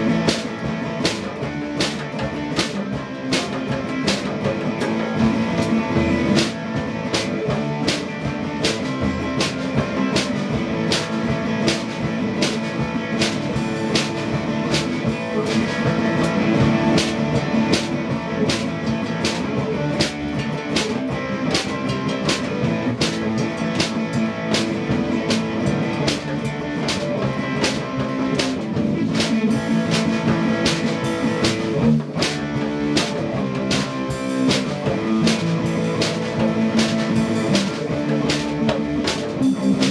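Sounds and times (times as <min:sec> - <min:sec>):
drum beat: 0:00.0 - 0:39.9
electric guitar: 0:00.0 - 0:39.9.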